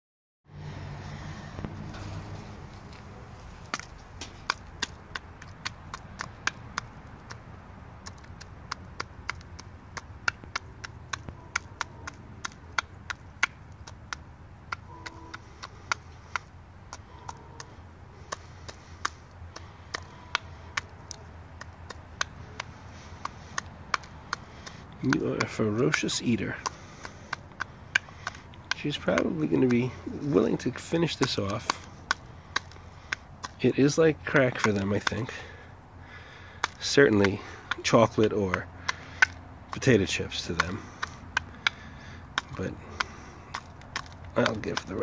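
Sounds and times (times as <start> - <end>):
beak tapping plastic cup: 34.6 - 37.9.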